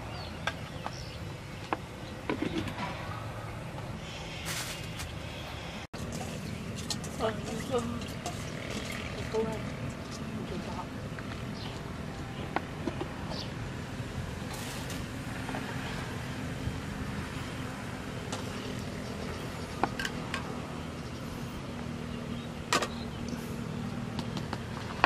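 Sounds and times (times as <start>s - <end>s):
cooking utensils clicking and clinking: 6.0s - 10.2s.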